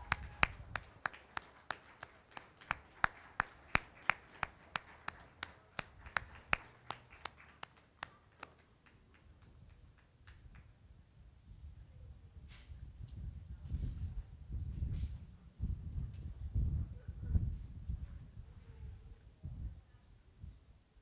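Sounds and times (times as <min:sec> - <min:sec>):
sharp hand claps: 0:00.0 - 0:10.7.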